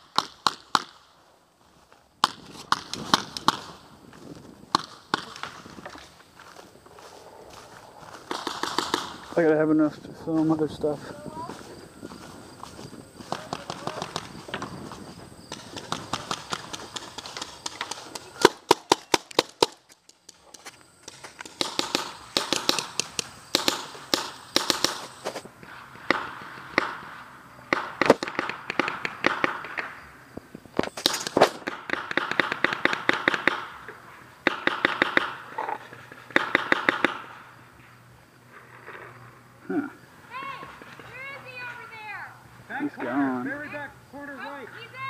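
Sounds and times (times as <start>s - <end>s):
paintball markers firing pops: 2.2s - 3.7s, 8.3s - 9.2s, 15.5s - 25.4s, 27.7s - 29.9s, 30.8s - 37.4s.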